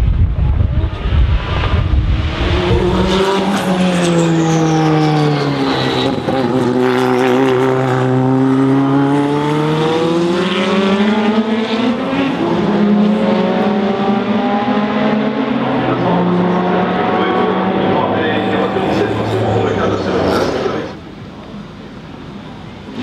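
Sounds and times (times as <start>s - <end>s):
racing car engine revving: 0.7s - 21.0s.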